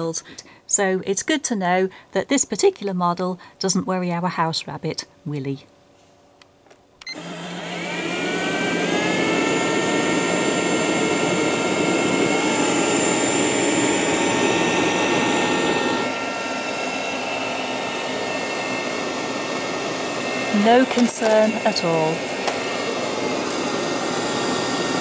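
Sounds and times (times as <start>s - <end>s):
robot vacuum cleaner running: 7.1s - 25.0s.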